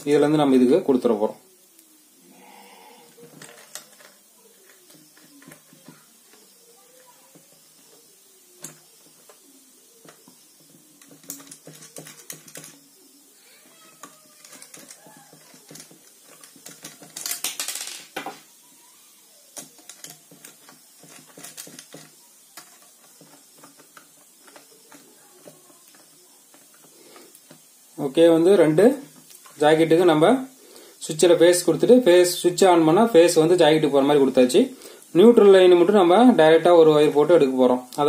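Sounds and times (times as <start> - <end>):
screwdriver scraping on screws: 3.1 - 13.0, 13.6 - 17.4, 19.5 - 27.7.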